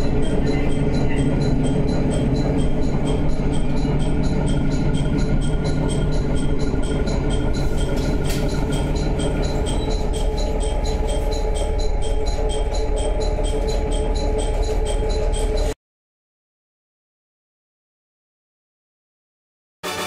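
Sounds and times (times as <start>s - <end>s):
quick even ticking: 0.0s - 15.7s
train engine and wheels rumbling: 0.0s - 15.8s.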